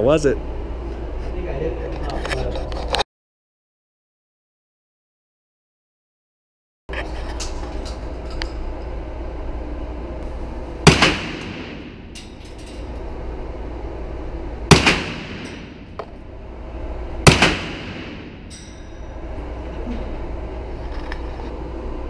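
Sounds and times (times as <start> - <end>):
steady low hum: 0.0 - 3.0, 6.9 - 22.0
gunshots with echo: 10.8 - 12.3, 14.7 - 16.0, 17.2 - 18.5.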